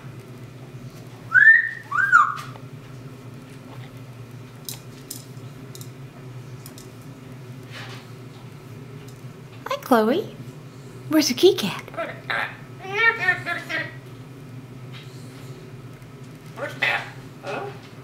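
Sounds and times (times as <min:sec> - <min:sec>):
parrot whistling: 0:01.3 - 0:02.5.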